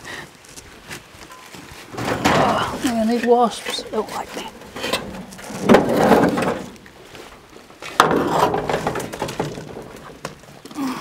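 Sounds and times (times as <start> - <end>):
sheet metal hood scraping: 1.9 - 10.3.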